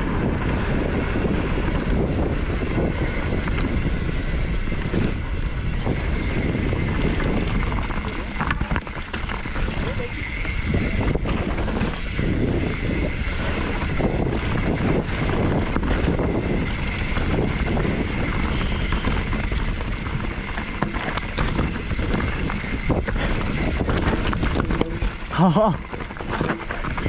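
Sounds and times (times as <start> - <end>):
bike rattling and knocking: 0.0 - 27.0
tyres on dirt: 0.0 - 27.0
wind noise on microphone: 0.0 - 27.0.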